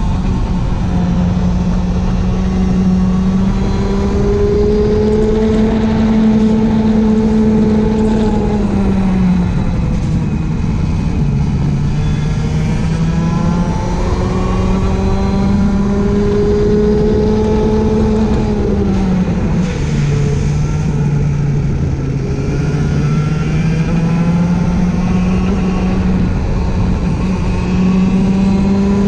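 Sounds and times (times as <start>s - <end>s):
kart engine revving: 0.0s - 29.0s.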